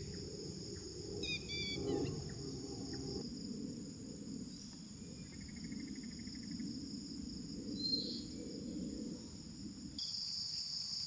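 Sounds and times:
low steady rumble: 0.0s - 4.6s
crickets trilling: 0.0s - 11.0s.

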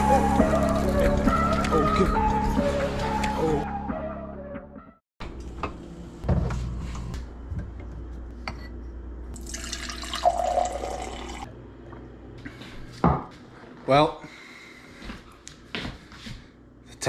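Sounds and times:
music: 0.0s - 5.0s
water pouring into glass: 9.4s - 11.5s.

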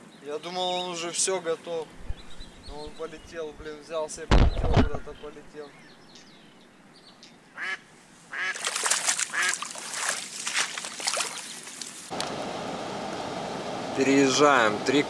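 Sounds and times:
duck quacking: 7.6s - 8.6s, 9.3s - 9.6s.

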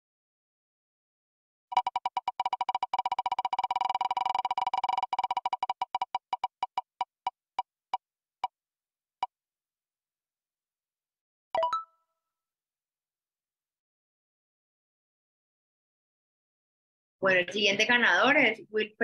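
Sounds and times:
spinning wheel ticking: 1.7s - 7.3s.

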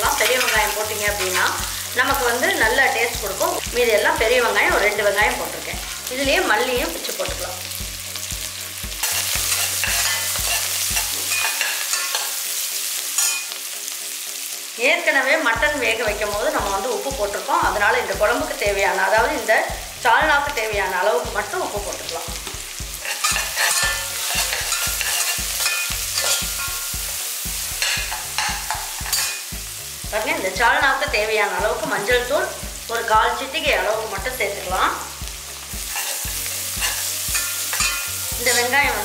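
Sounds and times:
onions sizzling in oil: 0.0s - 39.0s
stirring scrapes in pan: 23.0s - 26.9s, 35.9s - 38.1s.

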